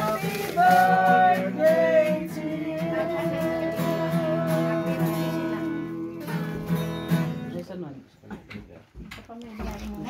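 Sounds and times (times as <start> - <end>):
person singing: 0.0 - 7.3
acoustic guitar strumming: 0.0 - 7.7.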